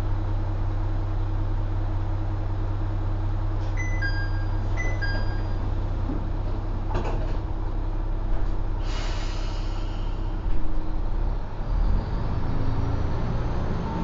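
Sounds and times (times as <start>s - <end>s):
diesel engine idling: 0.0s - 14.0s
two-note door chime: 3.8s - 5.6s
air hiss: 8.8s - 10.4s.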